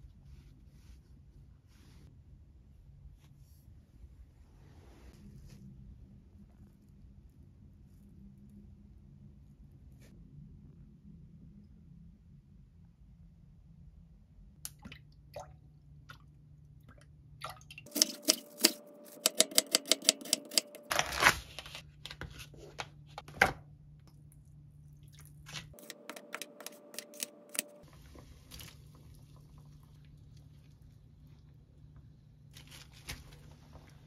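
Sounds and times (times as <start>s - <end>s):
knife chopping on wooden board: 17.9s - 20.9s.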